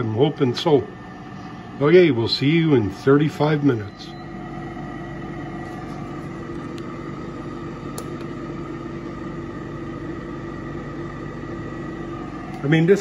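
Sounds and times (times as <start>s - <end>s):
air fryer humming: 0.0s - 13.0s.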